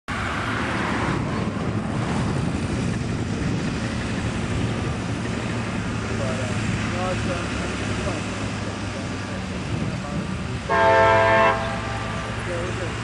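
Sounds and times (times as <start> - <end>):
wind noise on microphone: 0.1 - 6.0, 9.4 - 12.1
diesel locomotive rumbling: 0.1 - 13.0.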